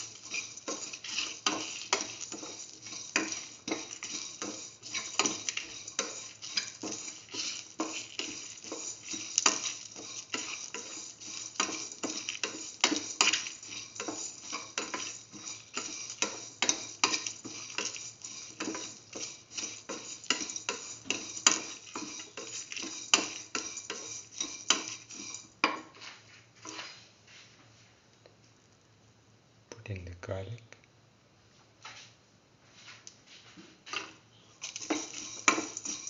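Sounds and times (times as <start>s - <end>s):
spatula scraping a steel pan: 0.0s - 27.0s, 33.9s - 36.0s.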